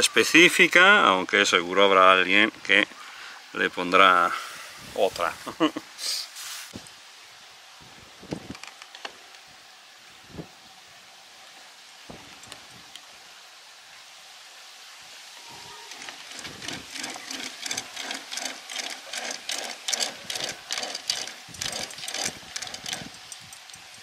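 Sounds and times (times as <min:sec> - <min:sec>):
mechanical rattling: 0:15.8 - 0:24.0.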